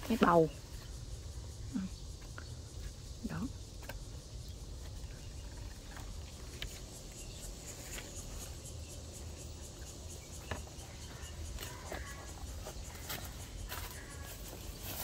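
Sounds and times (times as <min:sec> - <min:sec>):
footsteps on soil and straw: 0:11.5 - 0:15.0.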